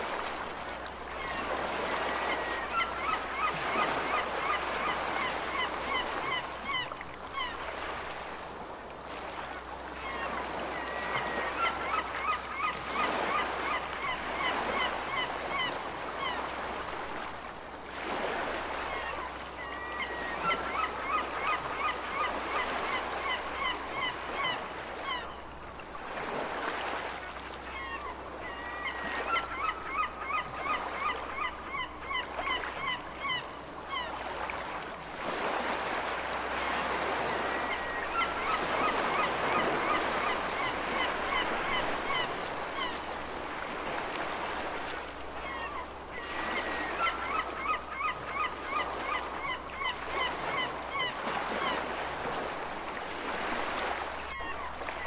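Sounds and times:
ocean waves: 0.0s - 55.0s
seagulls calling: 1.2s - 8.0s, 10.0s - 16.9s, 18.8s - 25.4s, 27.6s - 34.3s, 36.6s - 43.0s, 45.4s - 55.0s.

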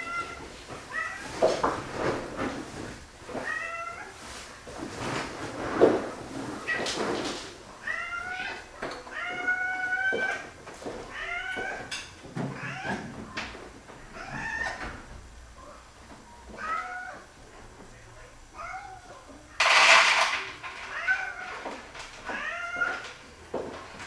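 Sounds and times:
cats meowing: 0.0s - 1.6s, 3.3s - 4.4s, 7.7s - 15.8s, 16.4s - 17.4s, 18.5s - 20.0s, 20.7s - 23.4s.

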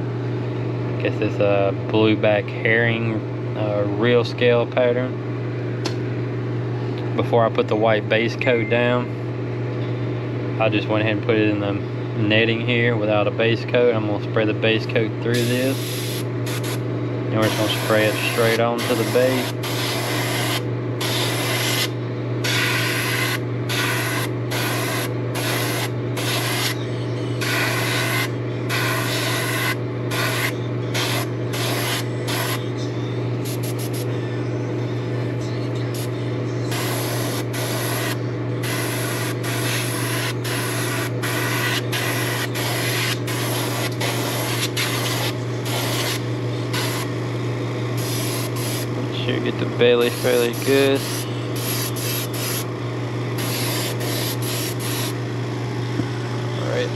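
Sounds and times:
steady low hum: 0.0s - 56.9s
airbrush spraying hiss: 48.0s - 48.9s.

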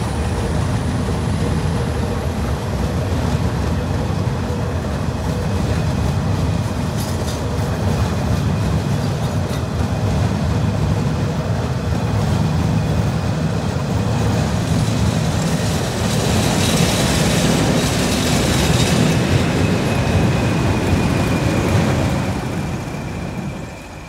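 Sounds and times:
diesel locomotive engines roaring: 0.0s - 24.0s
train wheel clatter: 0.0s - 24.0s
high steady whistle: 18.6s - 24.0s.

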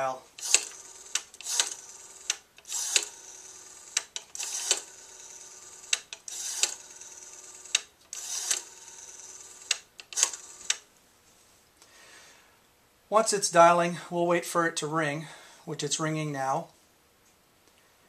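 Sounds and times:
rotary dial clicking and whirring: 0.3s - 10.9s.

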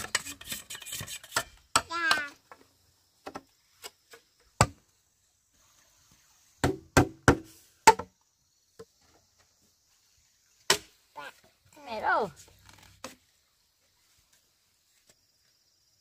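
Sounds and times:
hollow knocks on bamboo: 3.2s - 4.8s, 6.6s - 9.2s, 10.7s - 11.0s.

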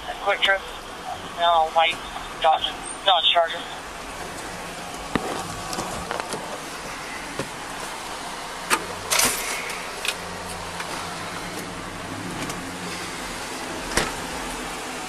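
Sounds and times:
car low hum: 0.0s - 15.0s
car door click and clatter: 5.0s - 6.6s
car door heavy thump: 13.8s - 14.3s.

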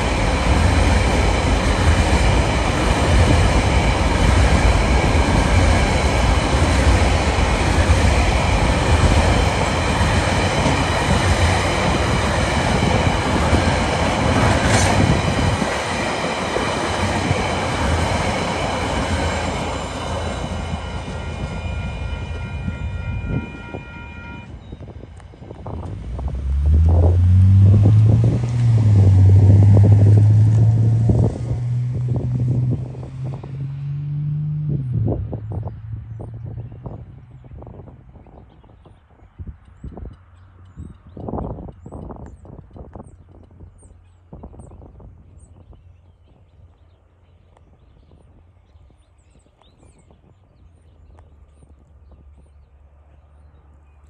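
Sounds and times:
distant diesel freight train rumble: 0.0s - 38.8s.

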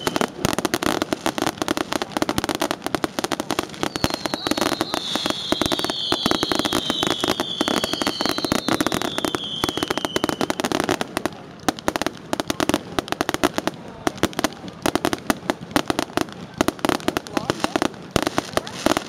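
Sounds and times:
fireworks crackling and popping: 0.0s - 19.0s
firework whistle falling in pitch: 3.9s - 10.5s.

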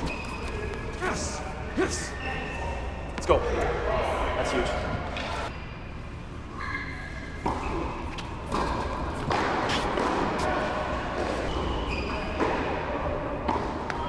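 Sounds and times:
tennis ball bouncing on court: 7.4s - 10.5s
tennis racket hitting ball: 8.4s - 10.6s.

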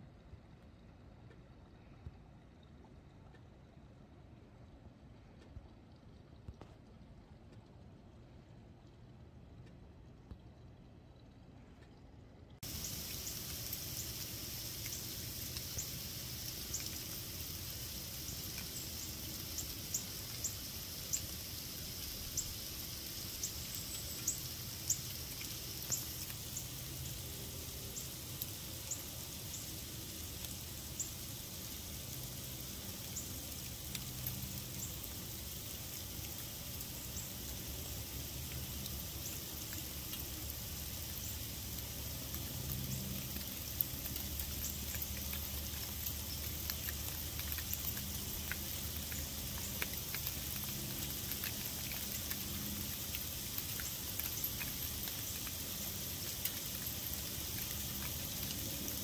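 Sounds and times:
faint low rumble: 0.0s - 25.5s
steady hiss: 12.6s - 59.0s.

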